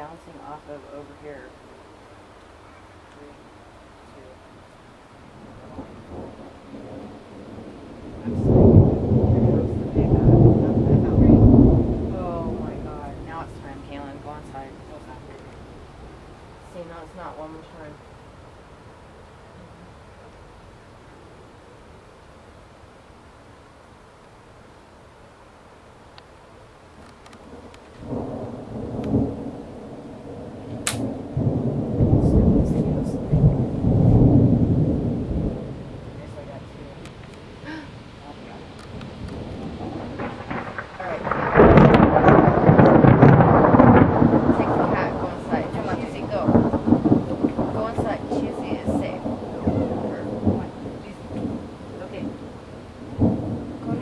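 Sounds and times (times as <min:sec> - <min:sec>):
thunder rumbling: 0:00.0 - 0:22.5, 0:27.0 - 0:54.0
sharp click: 0:30.8 - 0:31.1.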